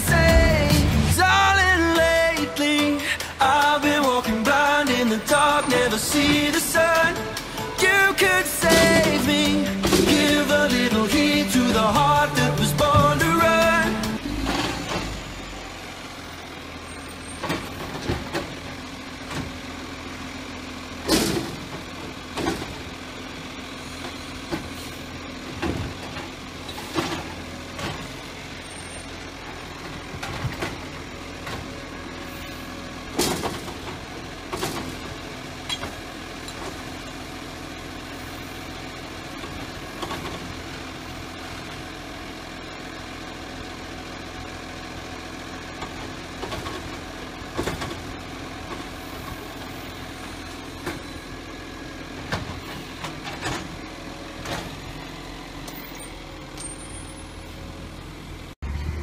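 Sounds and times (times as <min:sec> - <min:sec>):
hydraulic hum: 0:00.0 - 0:20.3
diesel engine running: 0:00.0 - 0:59.0
bins clunking and knocking: 0:06.0 - 0:15.2, 0:17.4 - 0:18.6, 0:21.1 - 0:22.9, 0:25.4 - 0:28.2, 0:29.8 - 0:31.8, 0:33.1 - 0:36.8, 0:45.8 - 0:48.1
air brake hisses: 0:24.7 - 0:25.1.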